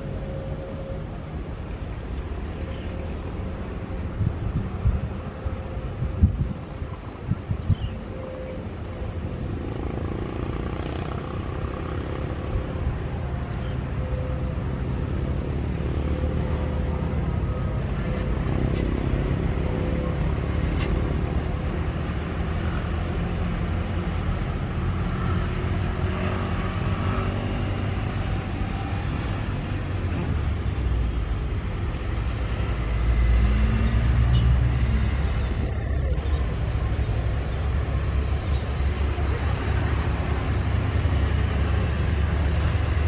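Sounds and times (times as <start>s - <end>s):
cars passing: 0.0s - 43.0s
low traffic rumble: 0.0s - 43.0s
motorcycles passing: 7.9s - 43.0s.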